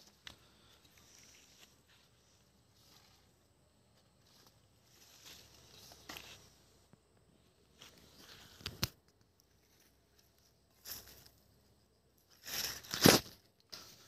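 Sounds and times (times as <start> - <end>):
dry leaves crunching underfoot: 4.2 - 6.5, 12.3 - 13.4.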